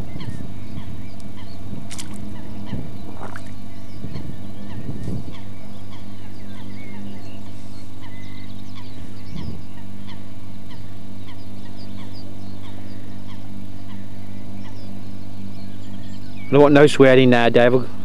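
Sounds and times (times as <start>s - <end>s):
faint bird chirps: 0.0s - 17.1s
low electrical hum: 0.0s - 18.0s.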